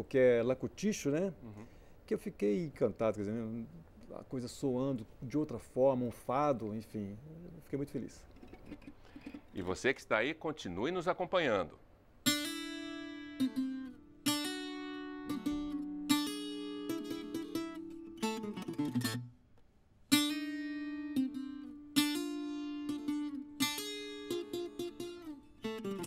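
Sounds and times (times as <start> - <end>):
plucked guitar chords: 12.2 - 19.4, 20.1 - 26.0.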